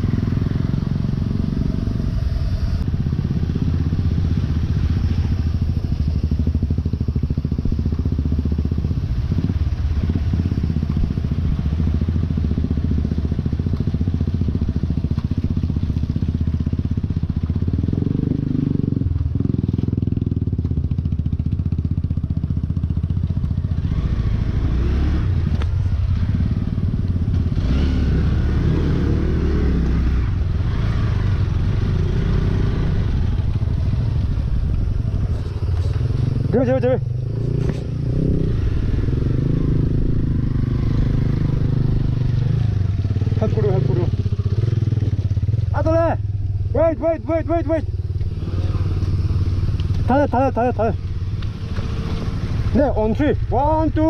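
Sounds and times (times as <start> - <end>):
motorcycle engine at low revs: 0.0 - 54.0
tyres on rocky trail: 12.4 - 27.8, 29.8 - 39.0, 41.0 - 54.0.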